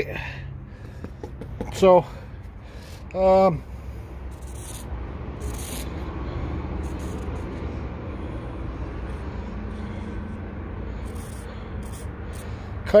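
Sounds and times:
low background rumble: 0:00.0 - 0:13.0
marker scratching on wood: 0:04.3 - 0:12.6.

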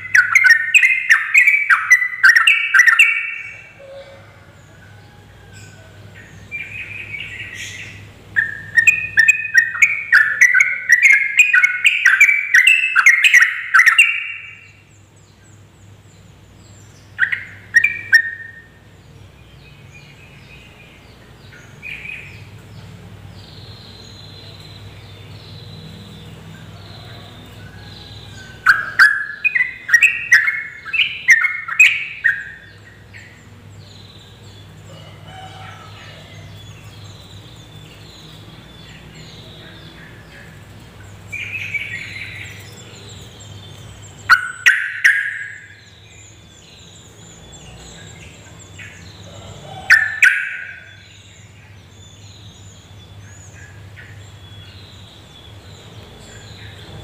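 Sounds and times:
bird singing chattering bursts: 0:00.0 - 0:03.8, 0:06.2 - 0:27.0, 0:28.0 - 0:34.8, 0:36.4 - 0:49.2.

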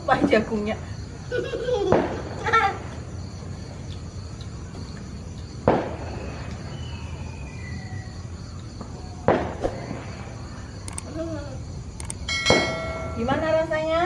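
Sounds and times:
faint insect chirr: 0:00.0 - 0:14.0
firecracker bang: 0:01.9 - 0:02.5, 0:05.6 - 0:06.4, 0:09.2 - 0:10.3, 0:12.3 - 0:13.4.

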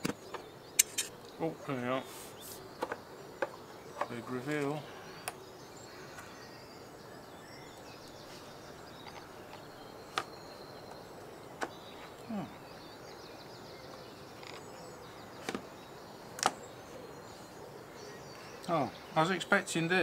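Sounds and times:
steady low hiss: 0:00.0 - 0:20.0
plastic case clicks: 0:02.8 - 0:04.1.

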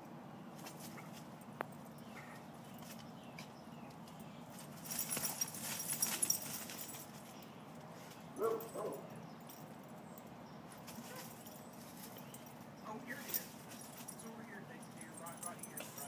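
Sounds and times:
dogs scrabbling and rustling: 0:04.5 - 0:08.9, 0:10.7 - 0:16.0.

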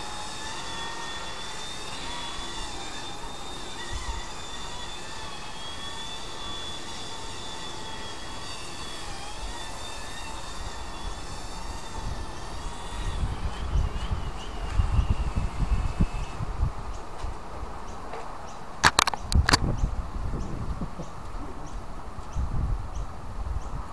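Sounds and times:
toy helicopter rotors whining: 0:00.0 - 0:17.1.

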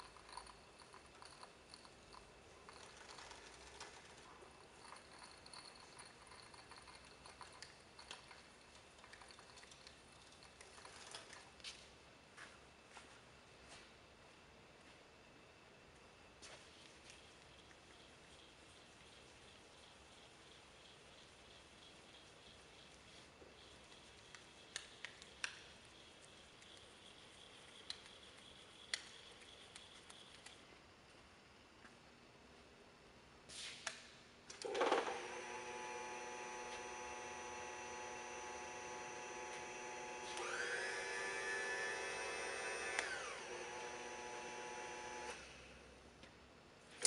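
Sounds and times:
faint room hiss: 0:00.0 - 0:47.0.

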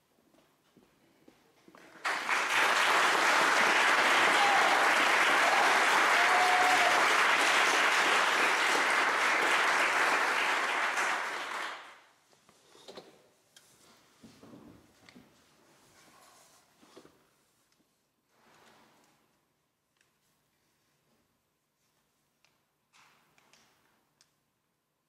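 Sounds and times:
audience applauding: 0:01.8 - 0:12.1.

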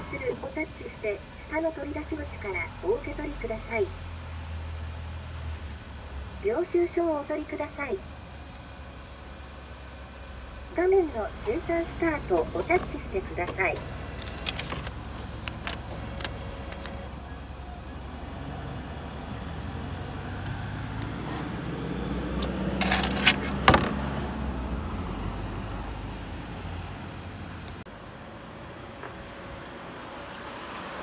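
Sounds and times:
coins clinking in metal tray: 0:22.8 - 0:23.5.

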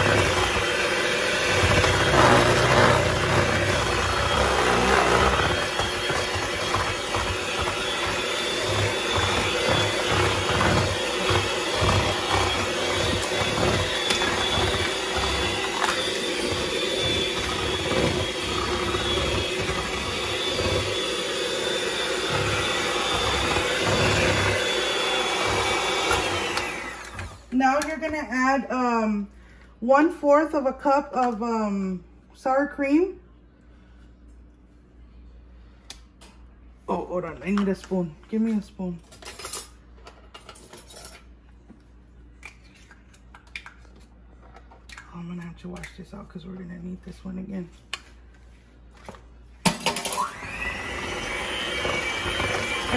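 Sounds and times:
electric hand mixer running: 0:00.0 - 0:27.5, 0:49.8 - 0:52.9.

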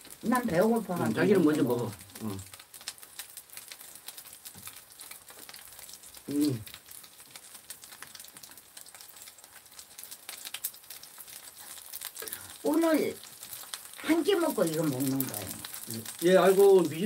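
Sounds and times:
pancake sizzling in a frying pan: 0:00.0 - 0:17.0
short voice sound: 0:06.3 - 0:06.6.

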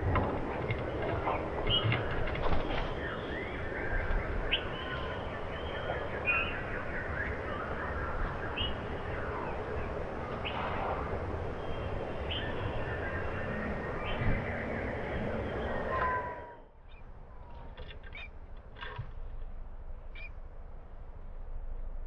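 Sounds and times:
low background noise: 0:00.0 - 0:22.0
songbirds chirping: 0:00.0 - 0:22.0.

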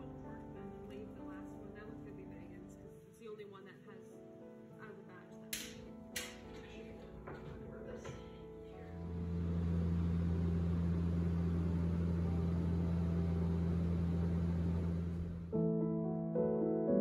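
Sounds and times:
jet cabin engine drone: 0:08.8 - 0:15.5.

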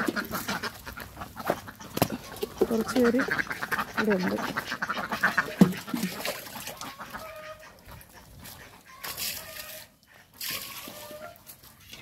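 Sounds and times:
poultry calling: 0:00.0 - 0:11.6.

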